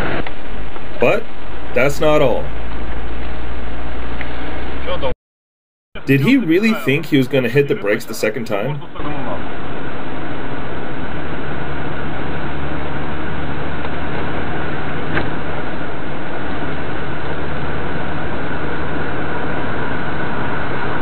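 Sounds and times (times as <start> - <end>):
truck engine running: 6.0 - 21.0.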